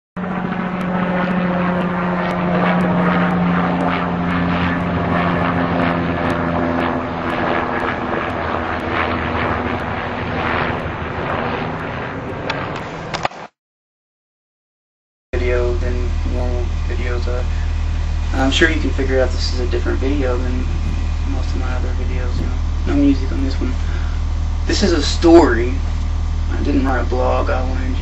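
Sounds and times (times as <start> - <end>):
mechanical drone with low hum: 0.2 - 13.3, 15.3 - 28.0
broad rushing noise: 15.4 - 28.0.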